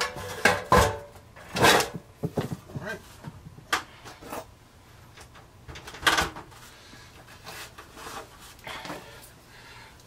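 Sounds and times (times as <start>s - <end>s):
hard objects knocking: 0.0s - 3.4s
objects clattering: 0.0s - 4.5s.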